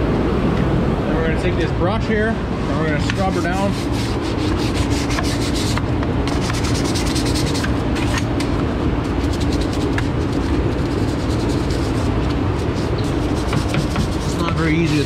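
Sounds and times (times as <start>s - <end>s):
mechanical hum of machinery: 0.0s - 15.0s
bristle brush scrubbing: 2.9s - 8.3s, 9.0s - 15.0s.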